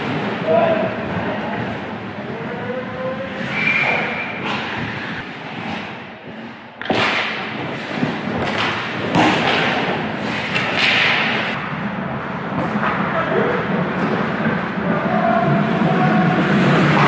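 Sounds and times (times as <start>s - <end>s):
skates scraping on ice: 3.2s - 11.6s, 12.2s - 17.0s
stick hitting puck: 3.8s - 11.6s.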